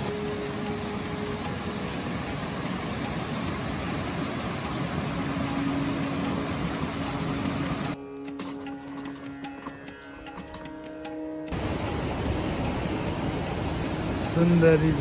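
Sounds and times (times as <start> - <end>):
stream rushing over rocks: 0.0 - 8.0, 11.5 - 15.0.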